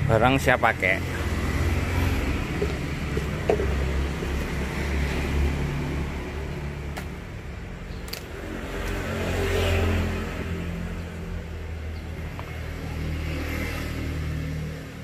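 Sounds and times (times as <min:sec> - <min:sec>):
low engine hum: 0:01.0 - 0:07.6.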